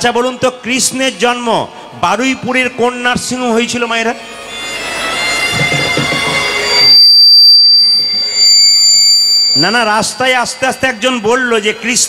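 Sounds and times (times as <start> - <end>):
piercing feedback squeal: 4.2 - 12.0
microphone feedback whistling: 4.5 - 12.0.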